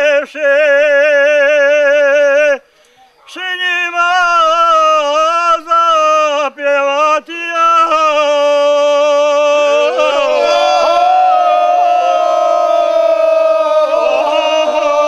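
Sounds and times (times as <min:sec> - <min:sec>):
men singing unaccompanied: 0:00.0 - 0:02.6, 0:03.3 - 0:11.1, 0:13.7 - 0:15.0.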